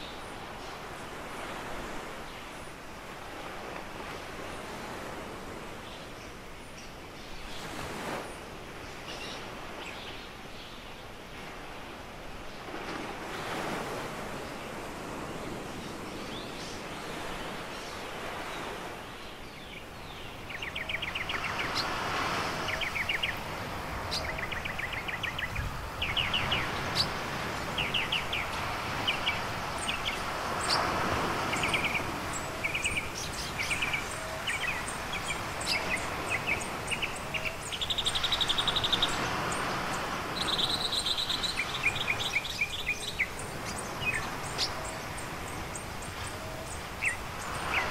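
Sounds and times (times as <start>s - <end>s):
surf washing onto a beach: 0.0s - 47.9s
small birds singing: 15.7s - 47.9s.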